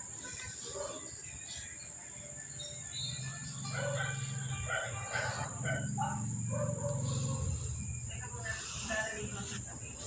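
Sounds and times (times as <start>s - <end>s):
steady low hum: 2.4s - 10.0s.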